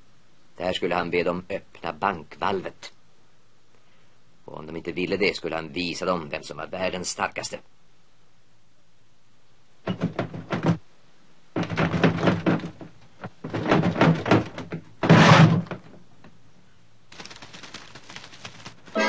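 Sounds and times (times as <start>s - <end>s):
cartoon knocks and clatter: 11.6s - 15.9s
faint rattling: 17.1s - 19.0s.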